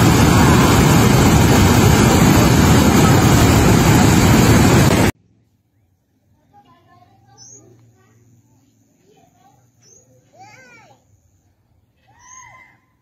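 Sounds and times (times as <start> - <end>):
water rushing over spillway: 0.0 - 5.1.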